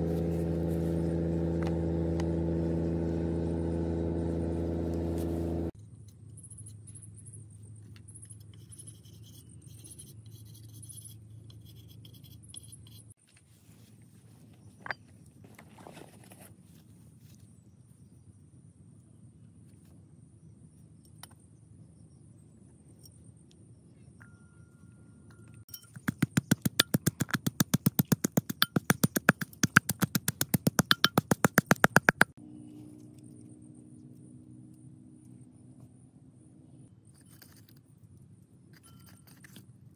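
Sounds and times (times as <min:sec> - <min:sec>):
knife scraping bamboo: 0:08.3 - 0:13.2
stone pestle pounding in mortar: 0:25.9 - 0:32.4.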